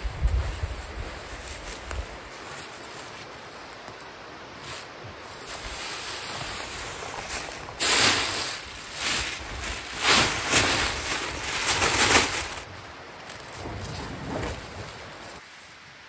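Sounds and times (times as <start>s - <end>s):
bursts of rustling: 4.6s - 15.4s.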